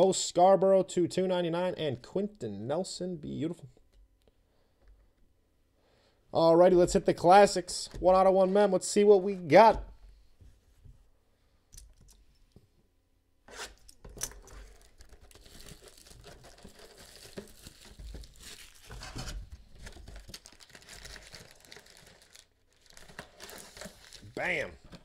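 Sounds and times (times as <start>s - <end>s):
plastic shrink wrap tearing and crinkling: 13.7s - 24.6s.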